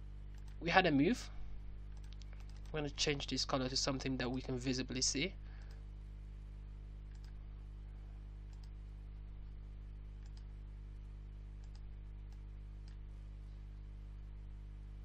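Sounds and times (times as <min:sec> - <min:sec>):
steady low hum: 0:00.0 - 0:15.0
faint computer mouse clicks: 0:07.1 - 0:07.4, 0:08.5 - 0:08.8, 0:10.2 - 0:10.5, 0:11.6 - 0:13.0.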